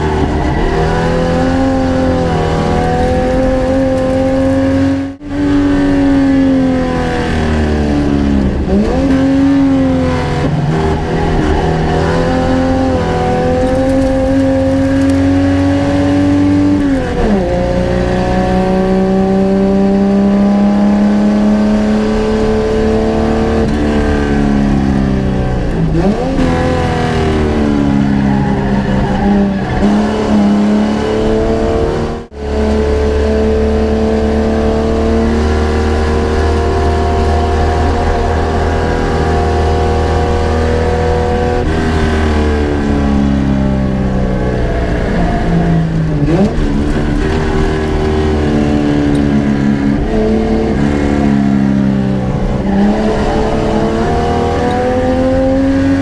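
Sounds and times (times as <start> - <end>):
race car engine accelerating: 0.0 - 56.0.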